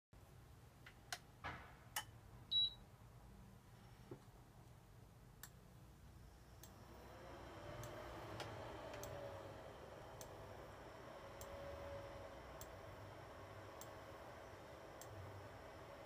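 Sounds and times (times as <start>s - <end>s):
cooktop touch control beep: 2.5s - 2.8s
induction heating hum: 5.4s - 16.0s
faint relay clicks: 7.8s - 9.2s, 10.2s - 10.4s, 11.4s - 11.6s, 13.8s - 14.0s, 15.0s - 15.2s.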